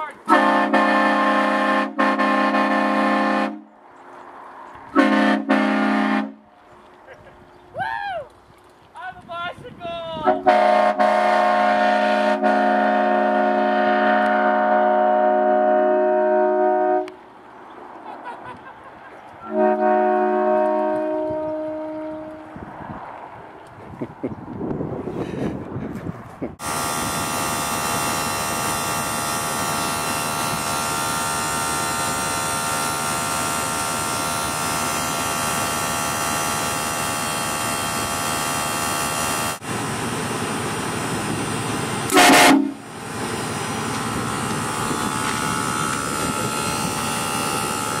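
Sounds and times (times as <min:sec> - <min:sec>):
train horn blast: 0:00.2 - 0:03.7, 0:04.9 - 0:06.5, 0:10.2 - 0:17.2, 0:19.4 - 0:22.6, 0:26.6 - 0:39.6, 0:42.1 - 0:42.9, 0:44.0 - 0:48.0
air compressor running: 0:39.9 - 0:48.0.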